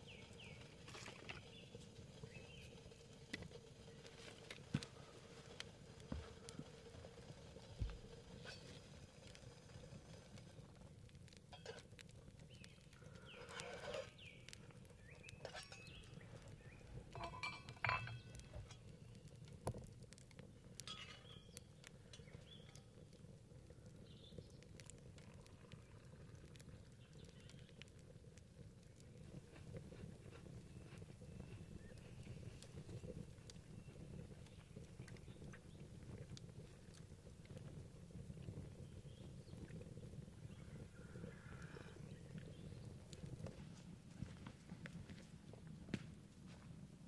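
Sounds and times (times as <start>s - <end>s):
metal mug clinking: 17.1s - 18.3s.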